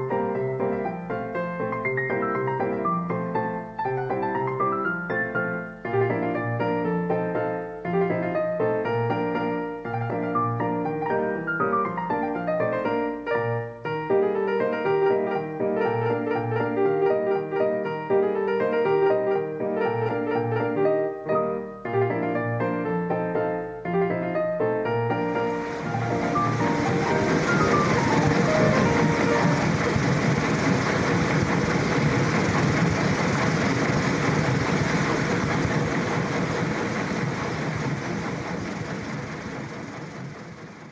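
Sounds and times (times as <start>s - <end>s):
solo piano piece: 0.0s - 40.9s
mechanical clattering: 25.3s - 40.9s.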